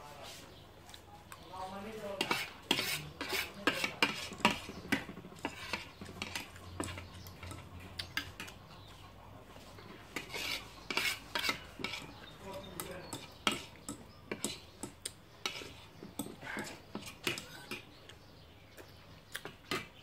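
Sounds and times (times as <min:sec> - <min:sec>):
cutlery scraping a plate: 0:02.2 - 0:08.6, 0:09.8 - 0:18.0, 0:19.6 - 0:20.0.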